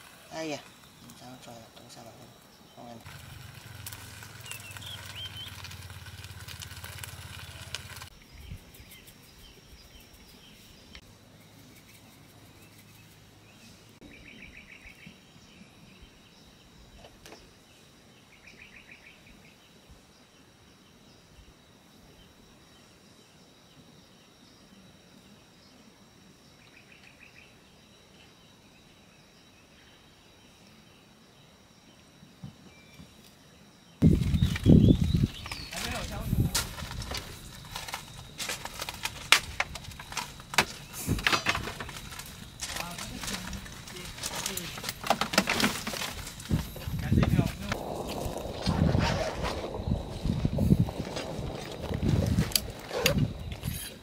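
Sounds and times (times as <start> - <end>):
high insect drone: 0.0 - 54.0
food sizzling in a pan: 3.0 - 8.1
gas burner hum: 3.1 - 8.1.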